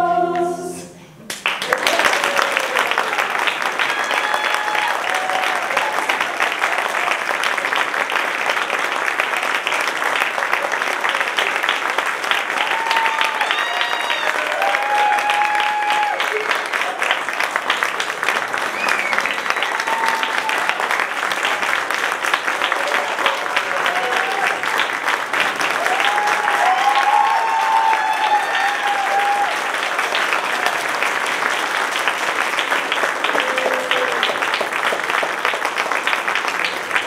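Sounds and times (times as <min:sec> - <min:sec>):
audience applauding: 0:01.3 - 0:37.0
voices calling out and cheering: 0:12.5 - 0:17.2.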